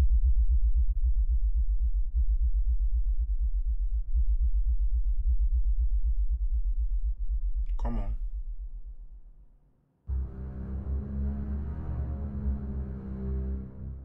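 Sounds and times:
deep throbbing drone: 10.1 - 14.0.

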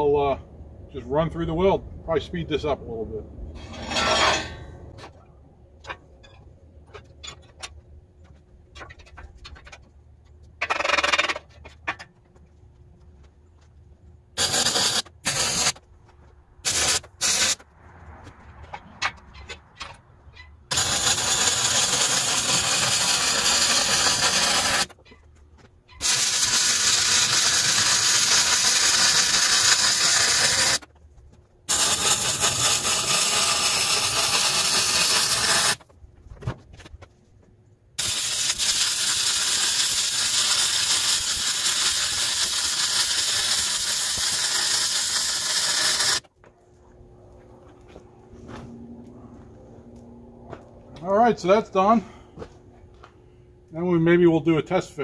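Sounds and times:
welding arc crackling: 14.4 - 15.8, 16.6 - 17.6, 20.7 - 25.0, 26.0 - 30.9, 31.7 - 35.8, 38.0 - 46.3.

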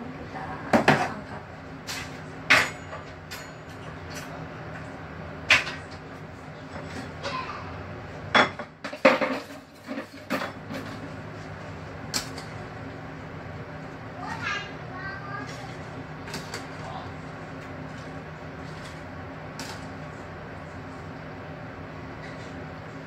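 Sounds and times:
steady low hum: 0.0 - 23.0
dishes and pans clinking: 1.8 - 4.4, 8.3 - 11.2.

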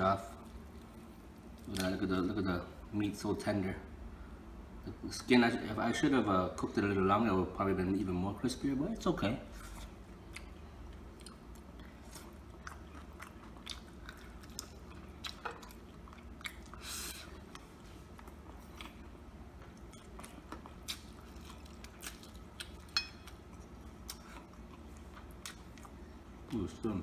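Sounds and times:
person chewing crispy food: 9.6 - 26.2.

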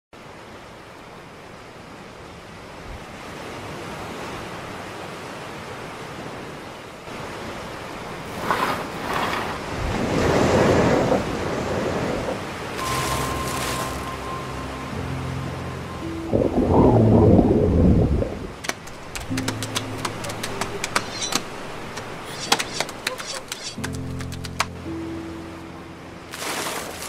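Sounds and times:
ocean waves washing: 0.2 - 27.0
surf breaking: 8.1 - 14.4, 16.3 - 24.8.

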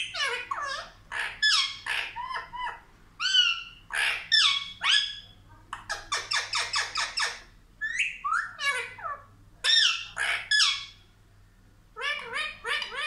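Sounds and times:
parrot squawking and chirping: 0.0 - 11.0, 11.9 - 13.0.

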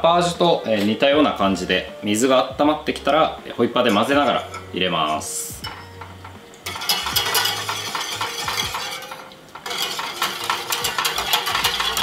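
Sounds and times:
whisk scraping a saucepan: 5.6 - 12.0.

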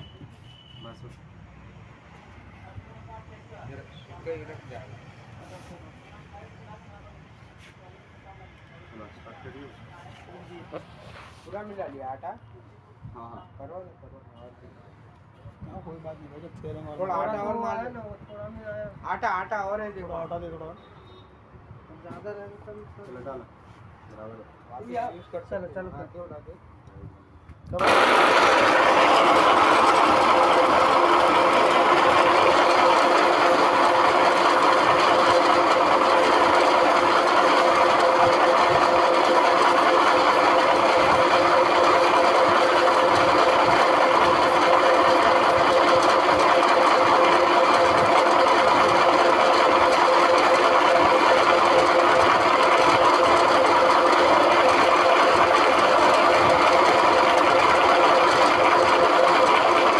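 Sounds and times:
pellet mill humming and whining: 27.8 - 59.9.

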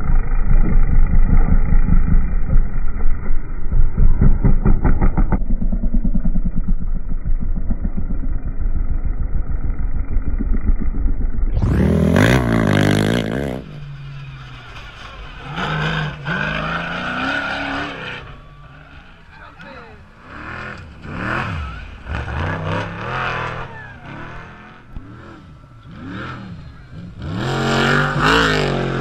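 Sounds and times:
muffled quad engine passing: 0.0 - 29.0
race truck engine revving: 9.4 - 29.0.

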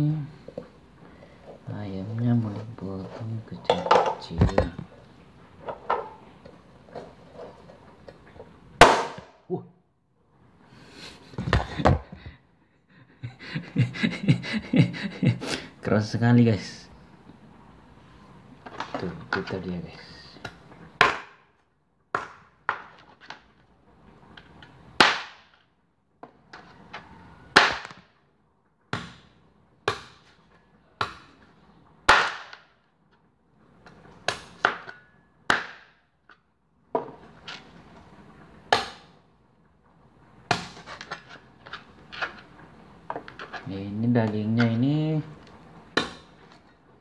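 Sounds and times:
cleaver chopping on plastic board: 20.4 - 21.4, 22.1 - 22.9, 27.6 - 28.0, 32.1 - 32.6, 38.7 - 39.1.

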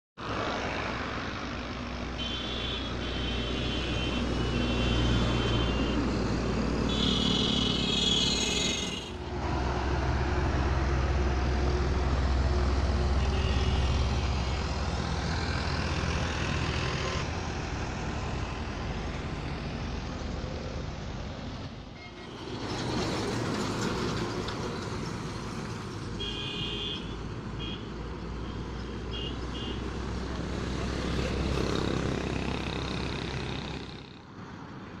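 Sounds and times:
diesel engine rumble: 5.6 - 26.2.

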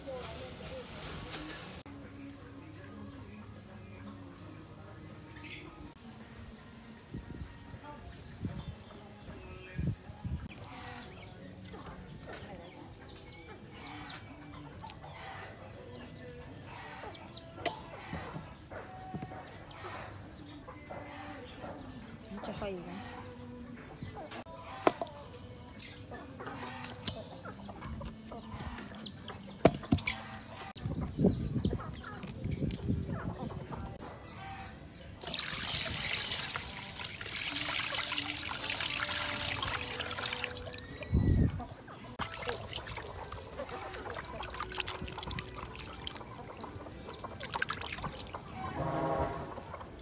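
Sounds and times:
chickens clucking: 10.5 - 35.2, 39.0 - 48.8, 49.5 - 50.0
water pouring into metal basin: 35.2 - 41.1, 42.2 - 48.5
wet handling of meat: 42.2 - 48.3.

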